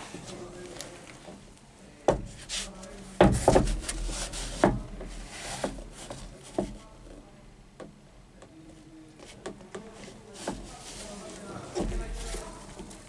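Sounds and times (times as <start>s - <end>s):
rubbing on fabric seat: 2.3s - 6.6s, 9.2s - 13.0s.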